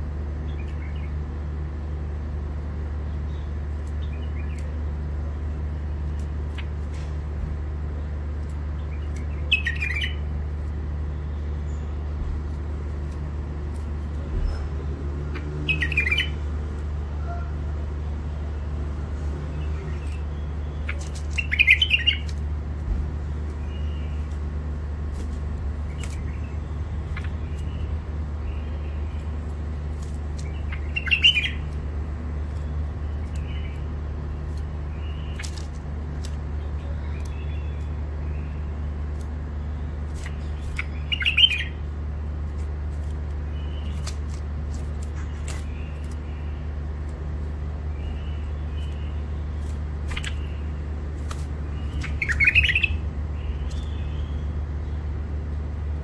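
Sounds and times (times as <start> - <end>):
steady low hum: 0.0 - 56.0
bird singing short sharp phrases: 8.8 - 10.3, 15.3 - 16.4, 19.5 - 22.4, 30.4 - 31.8, 39.7 - 41.8, 47.9 - 50.7, 51.6 - 55.0
faint bird chirps: 51.7 - 55.0.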